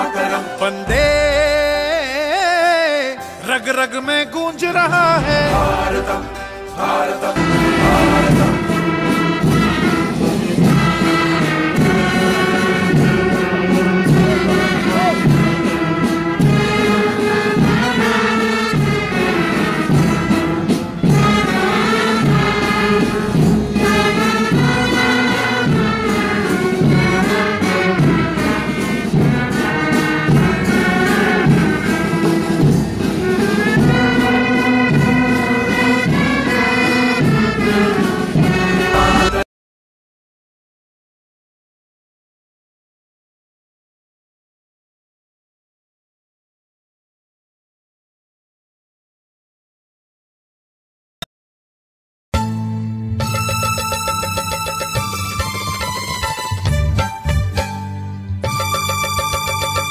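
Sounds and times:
orchestral brass music: 0.0 - 39.5.

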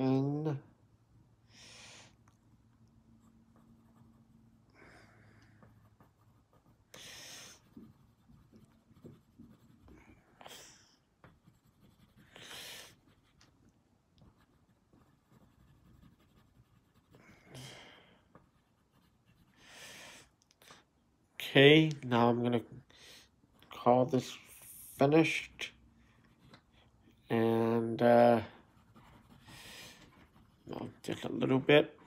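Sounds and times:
pencil scratching on paper: 3.1 - 4.6, 5.5 - 13.6, 14.2 - 17.6, 18.3 - 19.7, 25.2 - 31.7.

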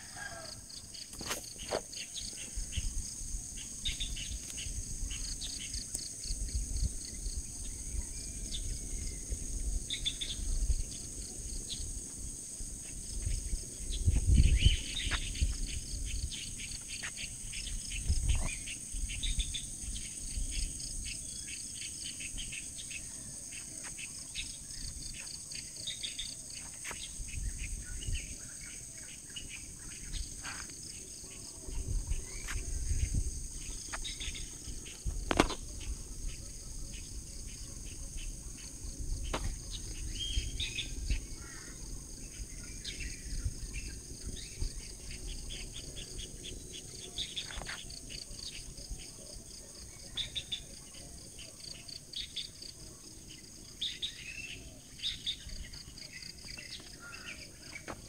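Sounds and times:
insects droning: 0.0 - 58.0
low rumbles on microphone: 13.0 - 16.4, 31.7 - 36.2
birds chirping: 13.0 - 49.0.

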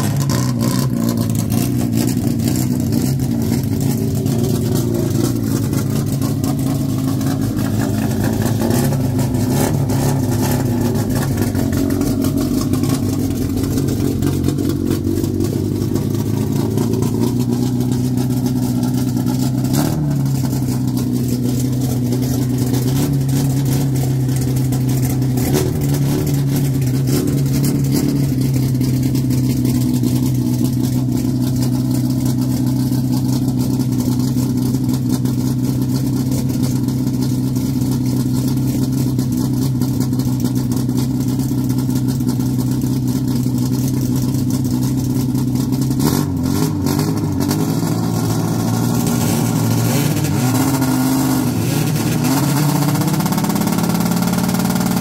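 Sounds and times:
car engine running: 0.0 - 55.0.

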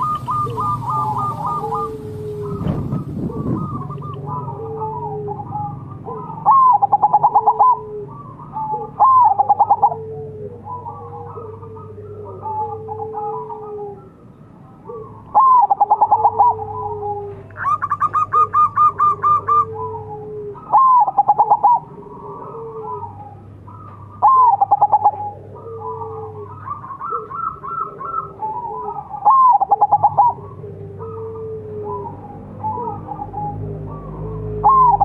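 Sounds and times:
staccato dove cooing: 0.0 - 14.1, 14.9 - 35.0
soft drawn-out dove cooing: 0.0 - 35.0.

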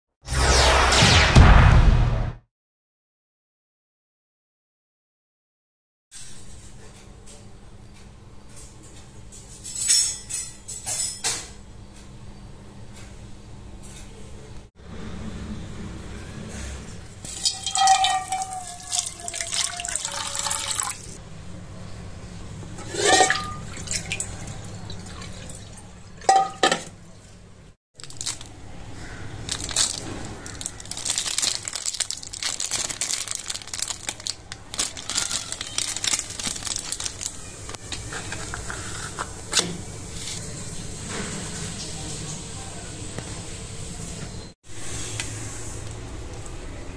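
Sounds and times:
water splashing in a sink: 17.3 - 21.2, 23.0 - 26.7.

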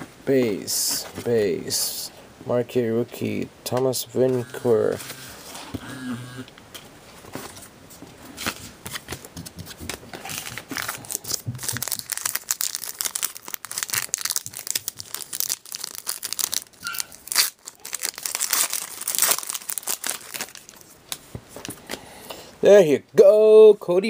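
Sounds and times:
plastic wrapper tearing and crinkling: 10.2 - 21.0.

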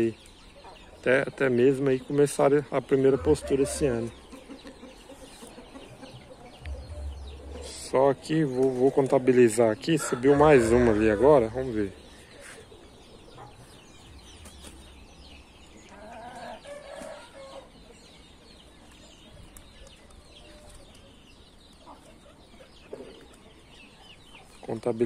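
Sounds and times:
hens clucking faintly: 0.0 - 15.0.

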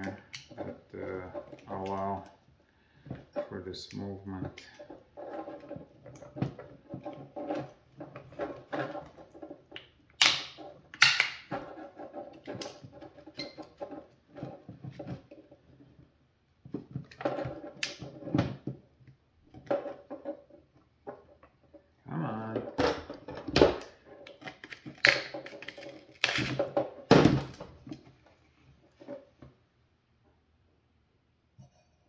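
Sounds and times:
plastic parts clicking and scraping: 0.0 - 29.4
sharp plastic snaps: 9.8 - 11.5.

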